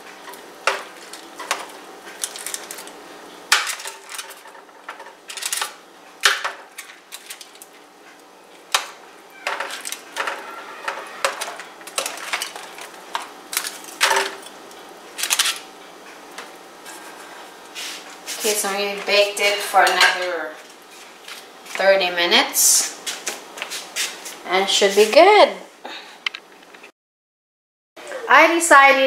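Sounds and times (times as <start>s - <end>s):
foil crinkling: 0.2s - 5.8s, 6.6s - 7.8s, 9.5s - 14.2s.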